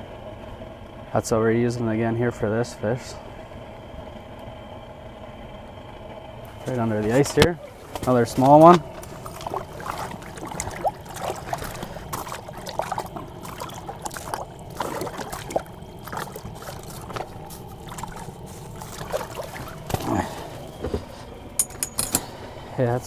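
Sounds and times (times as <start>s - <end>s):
water splashing and trickling: 6.5s - 21.6s.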